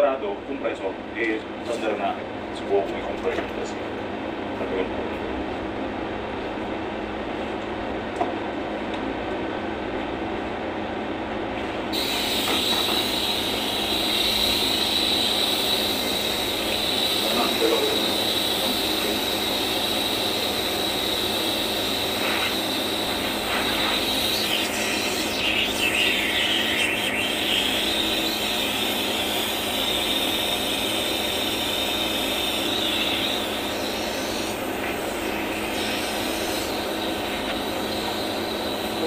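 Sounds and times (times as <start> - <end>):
machine whining: 12.0 - 39.0.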